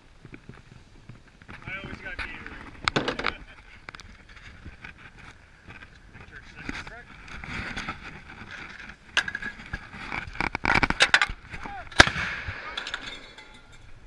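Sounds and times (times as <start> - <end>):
crew voices: 11.5 - 11.9.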